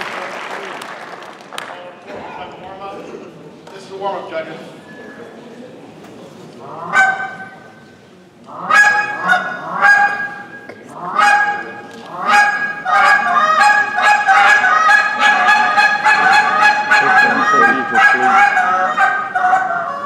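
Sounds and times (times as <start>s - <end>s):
goose call honks and clucks: 6.6s - 7.6s, 8.5s - 20.0s.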